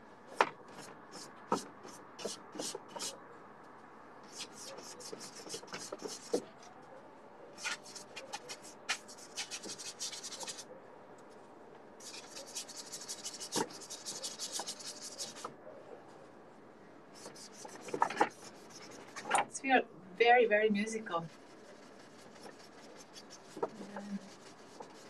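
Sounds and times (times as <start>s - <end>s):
paintbrush scrubbing on canvas: 0.7s - 3.2s, 4.3s - 6.5s, 7.6s - 10.7s, 12.0s - 15.5s, 17.2s - 19.3s, 20.9s - 25.0s.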